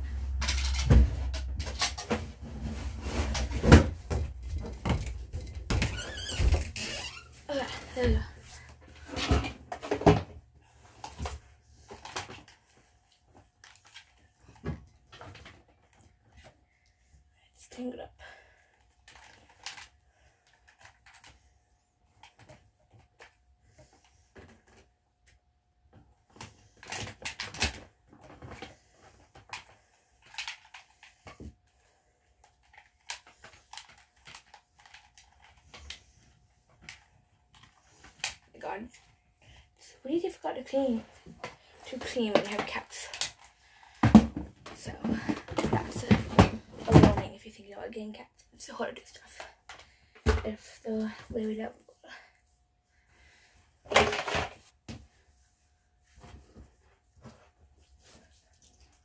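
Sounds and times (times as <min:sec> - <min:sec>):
rustling of things moved: 0:00.0 - 0:17.2, 0:49.2 - 0:59.0
household objects rustling and clattering: 0:00.0 - 0:47.6, 0:49.0 - 0:59.0.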